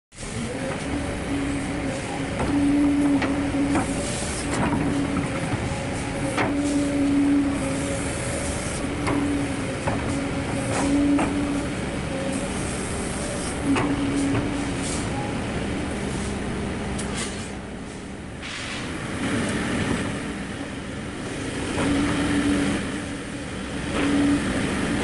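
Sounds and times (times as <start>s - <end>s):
hydraulic hum: 0.1s - 25.0s
excavator engine running: 0.2s - 18.4s.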